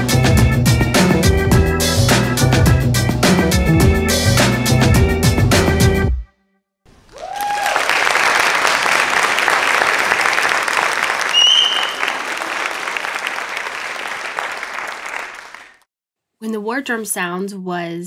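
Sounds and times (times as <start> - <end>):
audience clapping and cheering: 7.0 - 15.9
whooping shout: 7.1 - 8.0
shrill whistle: 11.3 - 12.3.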